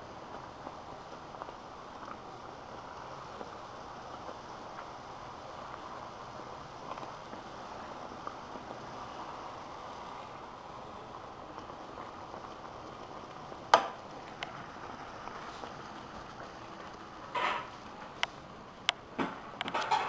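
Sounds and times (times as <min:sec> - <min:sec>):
dough sizzling in hot oil: 0:00.0 - 0:20.0.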